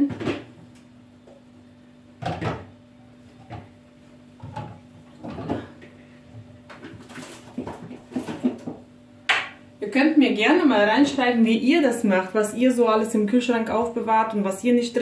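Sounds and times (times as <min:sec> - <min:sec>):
items knocking and clattering: 0:00.0 - 0:00.6, 0:02.2 - 0:03.7, 0:04.4 - 0:09.5
faint steady hum: 0:00.0 - 0:15.0.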